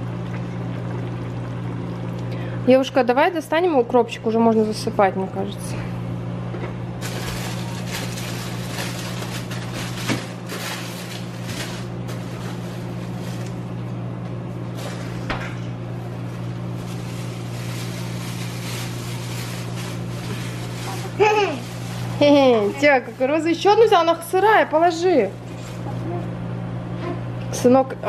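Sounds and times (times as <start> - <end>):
sauce bubbling: 0.0 - 2.6
steady low hum: 0.0 - 28.0.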